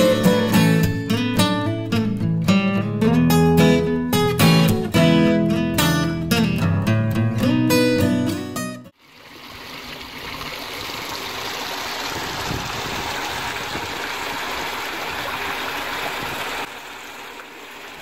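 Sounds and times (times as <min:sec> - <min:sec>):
water trickling in pond: 0:08.9 - 0:18.0.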